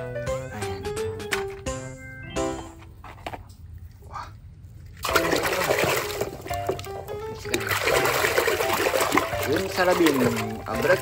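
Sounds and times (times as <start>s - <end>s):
background music: 0.0s - 3.0s, 5.2s - 11.0s
hand splashing in soapy water: 5.0s - 11.0s.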